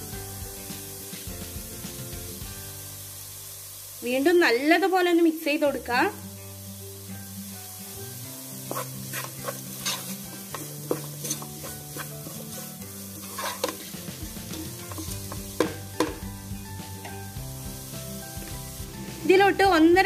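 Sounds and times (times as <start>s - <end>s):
onions sizzling: 0.0s - 20.0s
spatula scraping frying pan: 8.6s - 16.3s
spatula knocking against pan: 13.6s - 16.4s.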